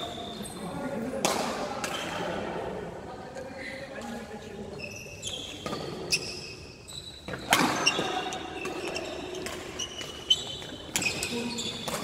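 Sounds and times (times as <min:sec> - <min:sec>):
shoes squeaking on court floor: 0:00.0 - 0:01.0, 0:04.5 - 0:12.0
rackets hitting shuttlecock: 0:01.1 - 0:02.4, 0:05.5 - 0:06.3, 0:07.2 - 0:12.0.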